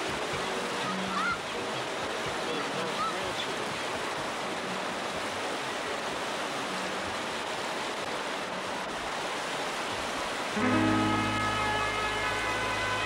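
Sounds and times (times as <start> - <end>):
river rapids rushing: 0.0 - 13.0
music: 10.6 - 13.0.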